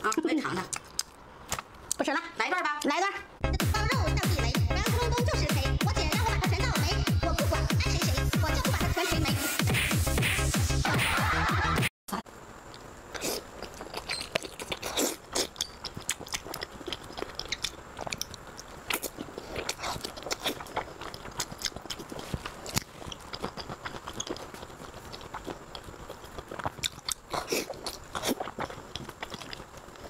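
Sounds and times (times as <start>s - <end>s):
person chewing food: 0.0s - 2.0s, 12.7s - 30.0s.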